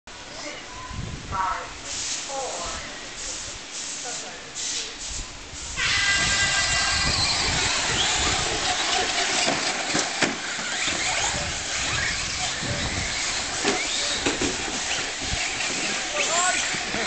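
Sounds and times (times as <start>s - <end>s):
rc truck motors whining: 5.8s - 17.0s
trucks knocking on landing: 7.9s - 17.0s.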